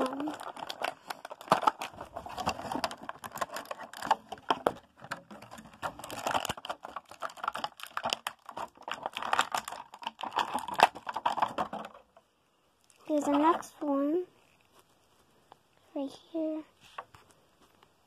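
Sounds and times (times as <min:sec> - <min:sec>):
plastic packaging crinkling: 0:00.0 - 0:12.2.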